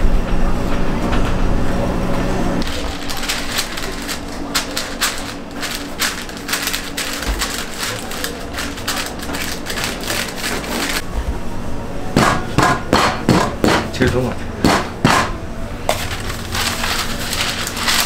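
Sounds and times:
steady low hum: 0.0s - 18.0s
parchment paper crinkling: 2.6s - 11.0s, 15.9s - 18.0s.

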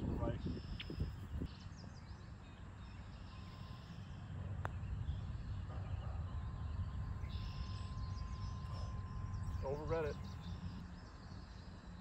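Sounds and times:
wind rumbling on microphone: 0.0s - 2.2s
faint bird chirps: 0.2s - 12.0s.

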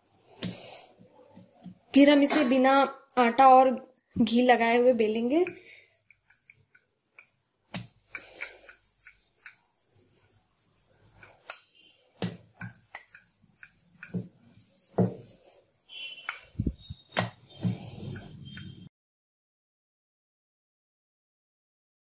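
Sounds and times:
rolling pin rubbing on dough: 5.2s - 18.9s
wood knocking against board: 15.0s - 15.2s.

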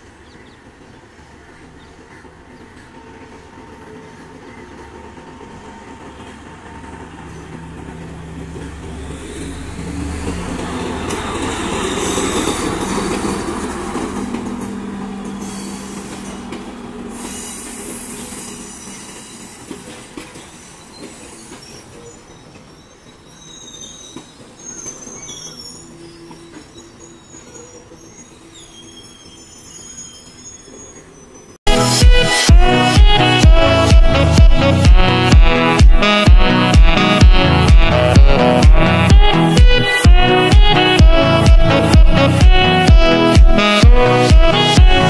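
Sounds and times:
diesel train passing: 0.0s - 45.0s
train wheel squeal: 8.5s - 31.6s.

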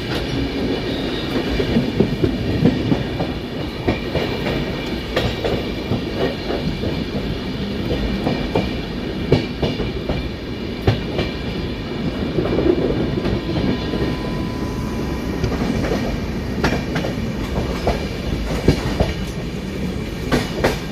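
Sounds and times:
train rumbling on track: 0.0s - 20.9s
wheels clacking over rail joints: 15.3s - 19.6s, 20.2s - 20.9s.

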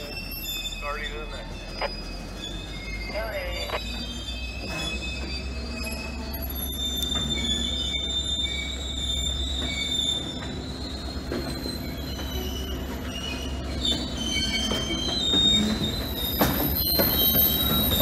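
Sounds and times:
low train rumble: 0.0s - 18.0s
train wheels squealing on rails: 0.0s - 18.0s.

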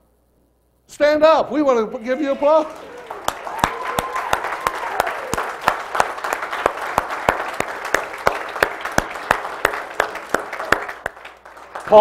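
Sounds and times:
crowd applauding: 2.0s - 12.0s
sharp hand claps close by: 3.2s - 12.0s.

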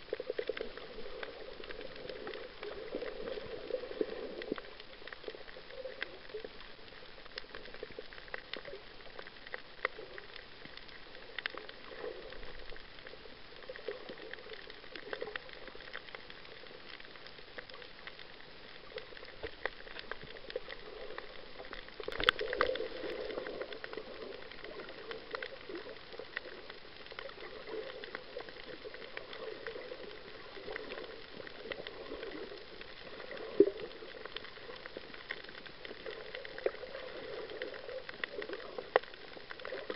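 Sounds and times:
low rush of water: 0.0s - 39.9s
snapping shrimp crackle: 18.9s - 39.9s.

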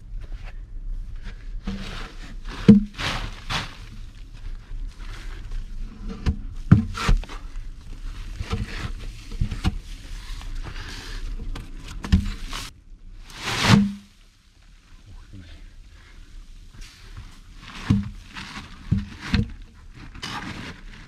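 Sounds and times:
log dragging and scraping: 0.0s - 21.0s
wooden logs knocking: 6.2s - 7.2s.

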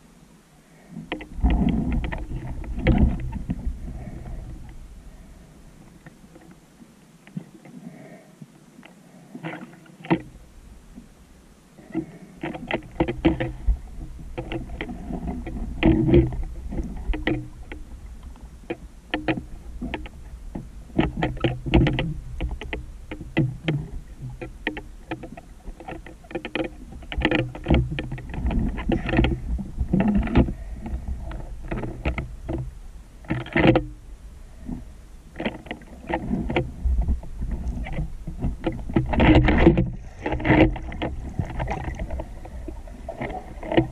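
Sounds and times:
irregular clicks and knocks: 1.0s - 4.8s, 9.4s - 10.4s, 11.9s - 34.0s, 34.6s - 43.9s
underwater rush of water: 35.4s - 43.9s.

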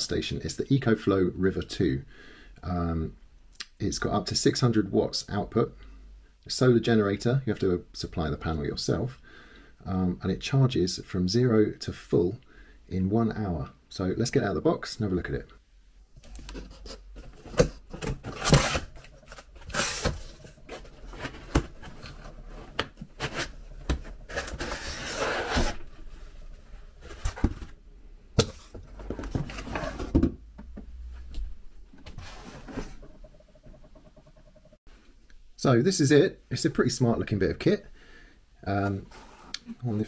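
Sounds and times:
cardboard rustling and scraping: 16.2s - 27.8s, 28.4s - 30.4s, 32.0s - 33.1s
knocks and clicks: 33.0s - 34.8s.

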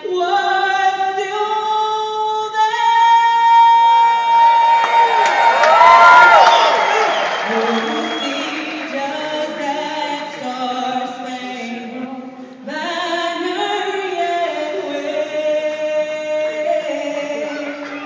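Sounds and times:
anthem sung over sound system: 6.7s - 18.0s.

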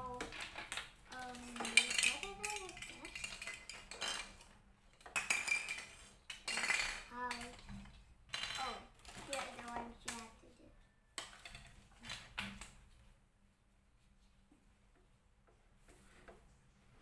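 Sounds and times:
plastic toy parts clattering on tile: 0.0s - 10.4s, 11.2s - 12.8s.

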